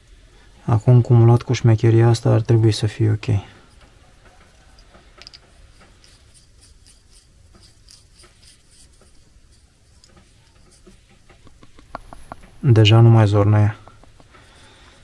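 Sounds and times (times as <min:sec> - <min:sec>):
rubbing of rubber boot and wire: 0:03.6 - 0:15.0.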